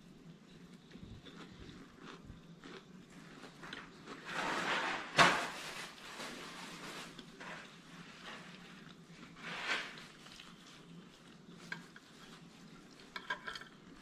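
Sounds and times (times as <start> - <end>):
fork on ceramic plate: 11.6 - 13.8.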